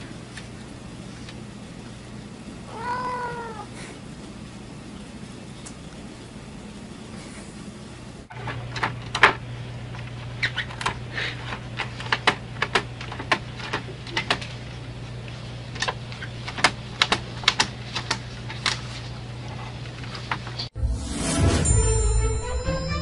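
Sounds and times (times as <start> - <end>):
low hum: 20.8 - 23.0.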